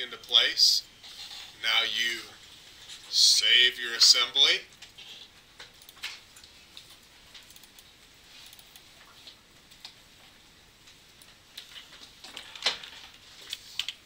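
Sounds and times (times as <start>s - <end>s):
computer mouse clicks: 5.6s - 8.9s, 13.4s - 14.0s.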